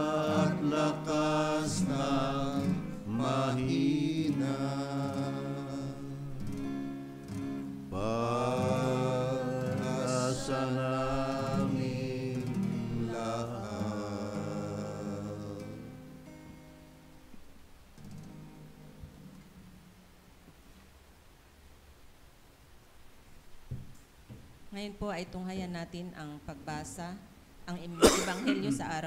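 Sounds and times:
group of voices singing: 0.0s - 6.3s, 7.9s - 16.2s
acoustic guitar: 0.0s - 20.8s, 23.8s - 29.0s.

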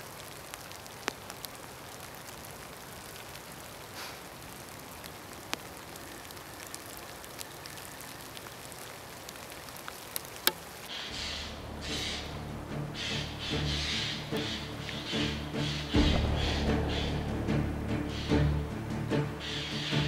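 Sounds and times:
steady outdoor hiss: 0.0s - 20.0s
small ticks and clicks: 4.0s - 11.1s.

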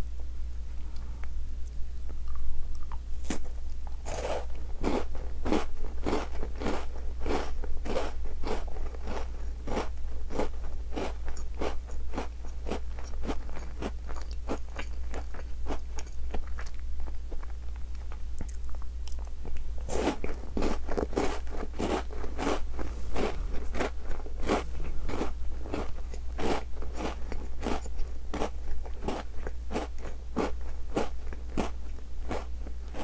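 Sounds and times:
crunchy chewing: 2.0s - 33.0s.

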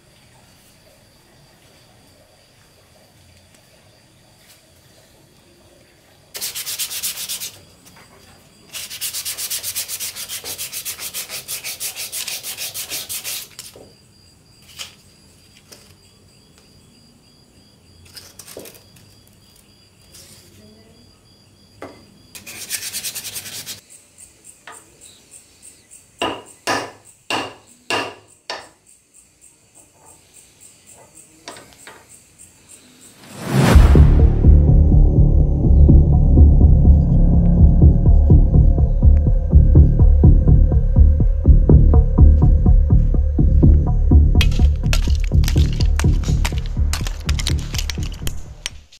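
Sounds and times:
fast sanding strokes: 6.4s - 7.6s, 8.7s - 13.6s, 22.4s - 23.8s.

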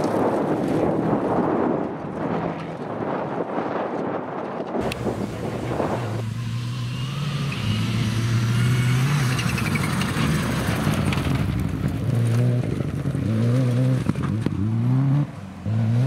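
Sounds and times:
rally car engine accelerating: 4.8s - 16.0s.

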